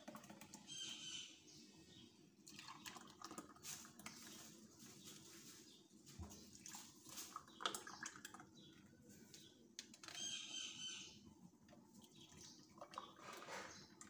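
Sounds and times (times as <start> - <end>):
liquid pouring and splashing: 2.4 - 4.6, 6.2 - 8.7, 12.0 - 14.0.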